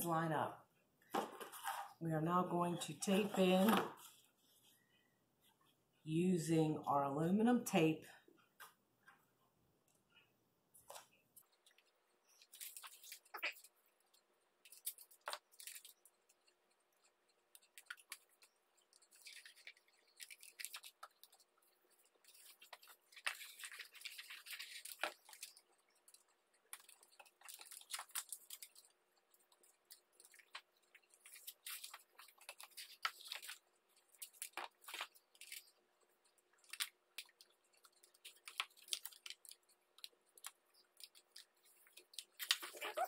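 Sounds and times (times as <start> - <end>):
foil tape crinkling: 11.6 - 13.7, 14.6 - 43.0.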